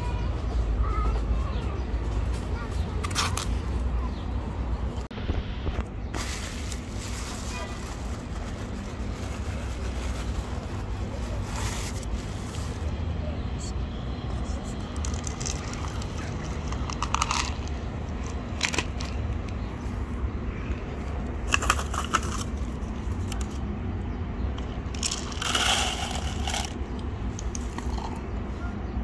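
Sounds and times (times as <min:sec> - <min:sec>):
kittens crunching kibble: 0:14.5 - 0:19.6, 0:24.6 - 0:28.4
kibble rattling onto concrete: 0:14.9 - 0:19.7, 0:21.4 - 0:23.5, 0:24.5 - 0:28.2.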